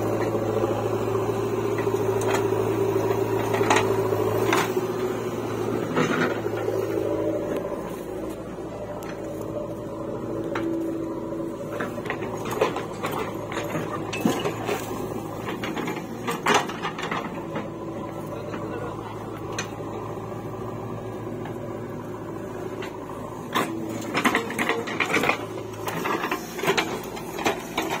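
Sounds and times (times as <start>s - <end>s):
diesel engine running: 0.0s - 28.0s
metallic clanks and knocks: 1.7s - 4.8s, 11.6s - 18.0s.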